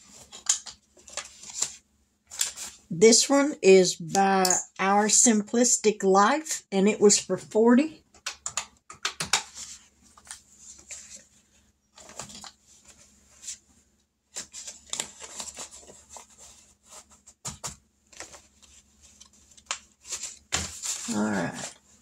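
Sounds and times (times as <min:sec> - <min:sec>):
paper rustling: 0:00.0 - 0:02.8, 0:09.3 - 0:22.0.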